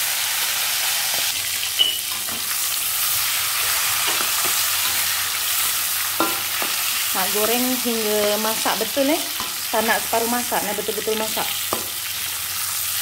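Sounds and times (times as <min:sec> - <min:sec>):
prawns sizzling in hot oil: 0:00.0 - 0:13.0
spatula scraping and tapping pan: 0:03.6 - 0:07.0.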